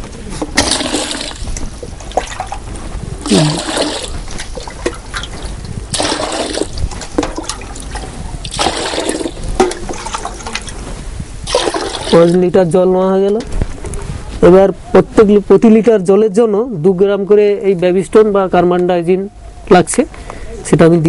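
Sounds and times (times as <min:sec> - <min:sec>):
water pouring into container: 0:00.6 - 0:02.6, 0:03.2 - 0:10.7, 0:11.4 - 0:12.4.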